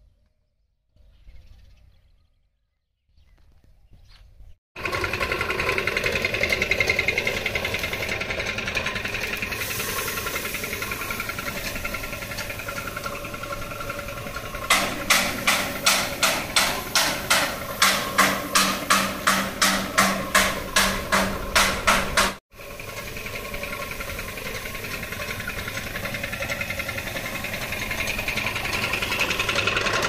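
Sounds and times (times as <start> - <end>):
electric paint spray gun buzzing: 4.8 - 21.9, 22.5 - 30.0
regular knocking: 14.4 - 22.4.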